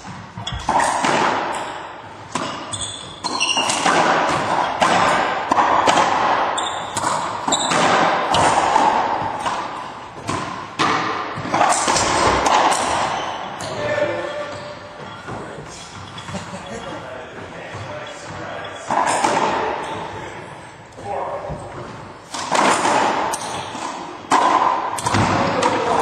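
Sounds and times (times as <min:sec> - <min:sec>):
racquetball hits echoing: 0:00.0 - 0:26.0
shoe squeaks: 0:00.4 - 0:01.8, 0:02.6 - 0:03.8, 0:06.5 - 0:08.0, 0:12.9 - 0:19.2.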